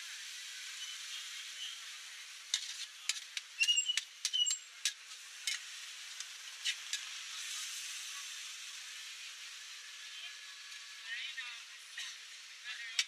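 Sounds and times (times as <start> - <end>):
beef sizzling in a wok: 0.0 - 13.0
metal spatula scraping a pan: 2.5 - 4.6.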